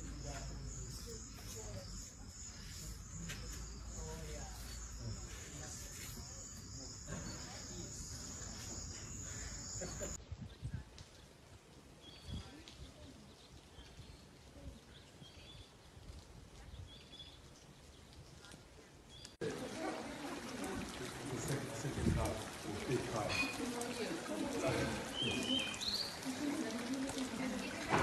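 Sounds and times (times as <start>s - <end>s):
high trill of insects: 0.0s - 10.2s.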